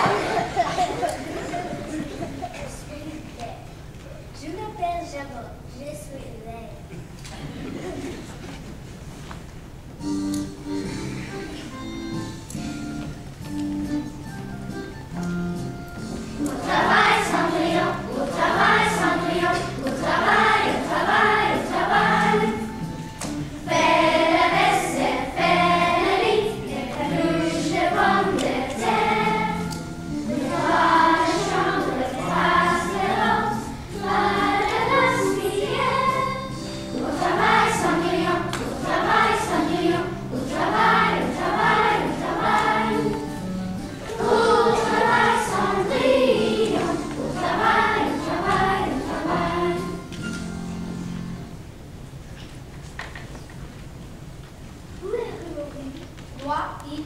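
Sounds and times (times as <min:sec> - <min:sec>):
children singing: 0:00.0 - 0:02.1, 0:16.4 - 0:22.9, 0:23.5 - 0:43.4, 0:44.0 - 0:50.1
instrumental accompaniment: 0:10.0 - 0:51.8.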